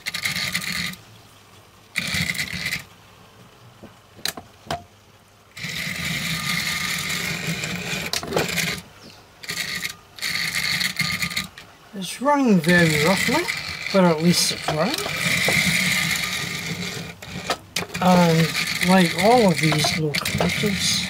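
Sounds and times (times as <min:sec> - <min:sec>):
model locomotive motor running: 0:00.0 - 0:01.0, 0:02.0 - 0:02.9, 0:05.5 - 0:11.7, 0:12.5 - 0:21.0.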